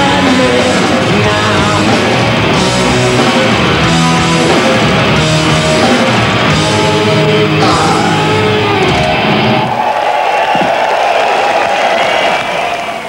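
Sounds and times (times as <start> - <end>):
distorted electric guitars: 0.0 - 9.9
drums: 0.0 - 13.0.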